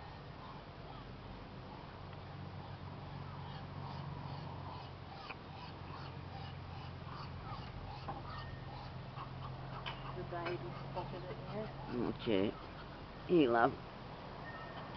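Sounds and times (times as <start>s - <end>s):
duckling peeping: 2.6s - 13.5s.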